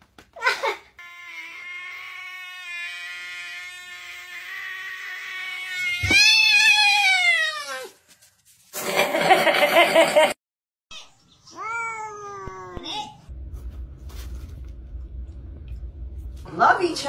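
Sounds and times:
cats yowling: 1.1 - 8.0.

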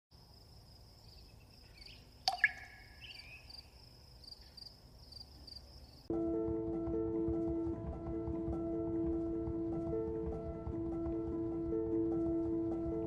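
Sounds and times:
high insect trill: 0.2 - 6.1
music: 6.1 - 13.0.

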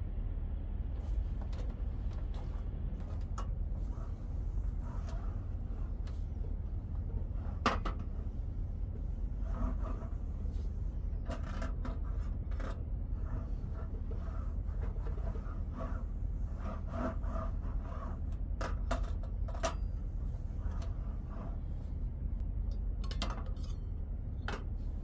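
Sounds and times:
low hum: 0.0 - 25.0
paper towel rubbing on metal: 3.0 - 18.4, 20.0 - 22.1.

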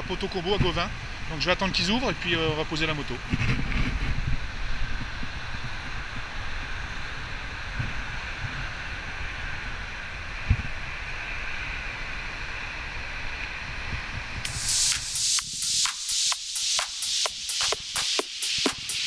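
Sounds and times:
wind buffeting microphone: 3.2 - 9.6.

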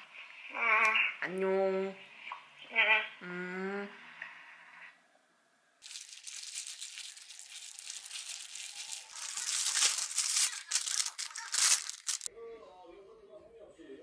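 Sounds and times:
plastic glove crinkling: 5.8 - 12.3.

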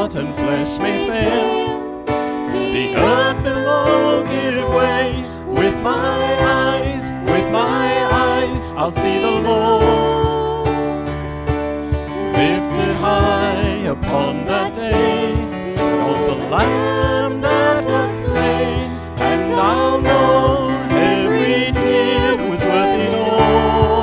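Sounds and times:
band strumming accompaniment: 0.0 - 24.0
congregation singing: 0.0 - 24.0.

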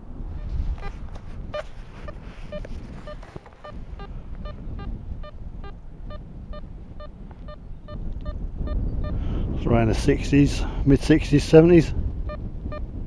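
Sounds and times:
metal detector beeping: 0.8 - 9.2.

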